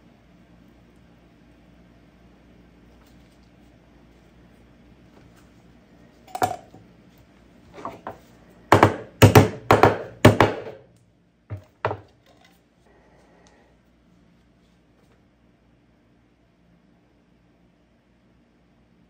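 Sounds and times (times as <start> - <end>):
hammer knocking on metal can lid: 8.7 - 10.8.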